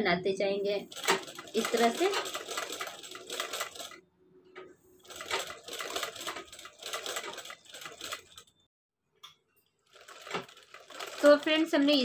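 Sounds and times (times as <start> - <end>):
sewing machine stitching: 0.9 - 4.0, 5.0 - 8.5, 9.9 - 12.0.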